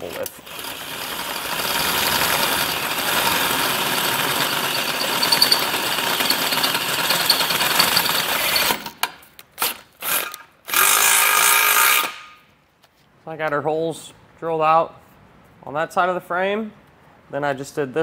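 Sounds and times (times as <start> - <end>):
drill bit grinding metal: 0.4 - 8.8
drill spinning whir: 0.4 - 8.9.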